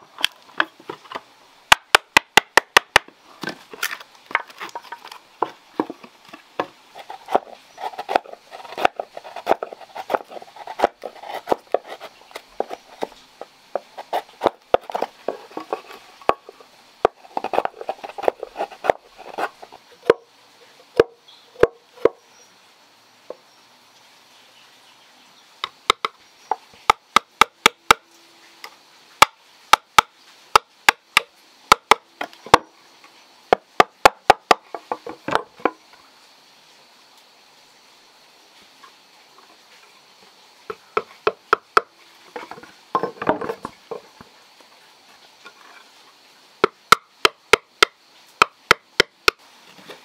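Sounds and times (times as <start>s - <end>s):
sharp wooden knocks: 1.7s - 3.6s, 25.6s - 26.2s, 46.6s - 49.4s
chisel scraping wood: 3.4s - 20.2s.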